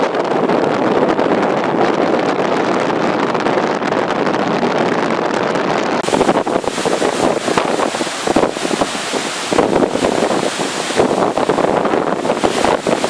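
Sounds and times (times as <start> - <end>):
strong wind on microphone: 0.0 - 13.0
lake waves breaking on shore: 6.0 - 13.0.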